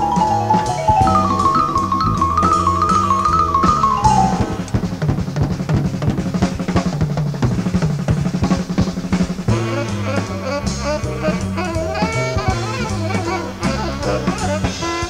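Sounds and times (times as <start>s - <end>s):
vibraphone melody: 0.0s - 4.7s
drum kit playing snare and bass: 0.0s - 15.0s.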